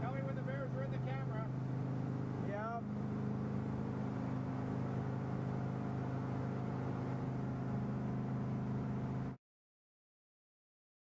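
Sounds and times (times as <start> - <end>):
motorboat engine running: 0.0 - 9.4
water and wind noise: 0.0 - 9.4.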